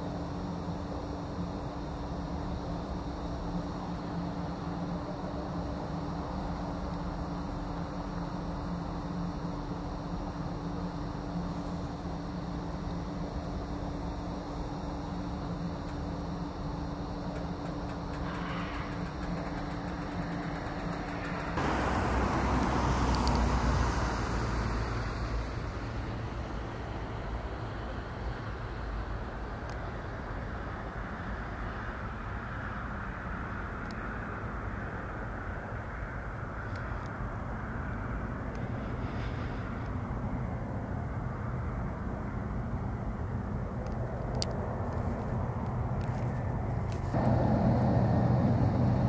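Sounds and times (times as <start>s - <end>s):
turboprop engines droning: 0.0s - 49.0s
rush of noise: 45.4s - 49.0s.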